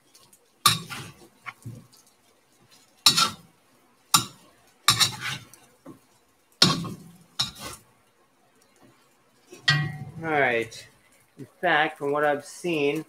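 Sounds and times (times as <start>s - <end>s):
utensil scraping an iron pan: 4.2s - 5.6s, 6.6s - 7.8s.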